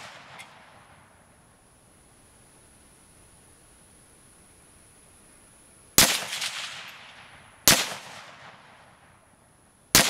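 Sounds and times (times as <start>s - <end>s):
rifle shots echoing: 6.0s - 9.1s.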